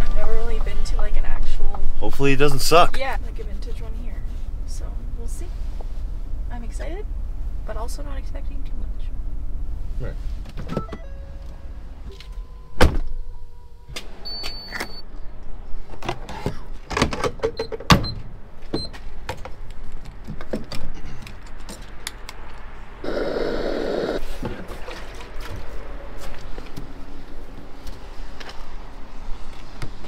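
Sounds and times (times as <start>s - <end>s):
rushing noise: 23.0s - 24.2s.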